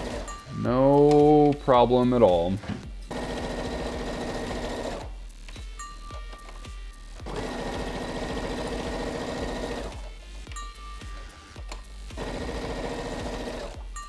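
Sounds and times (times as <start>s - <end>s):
sewing machine stitching: 0.0s - 0.4s, 3.1s - 5.1s, 7.3s - 10.1s, 12.2s - 13.8s.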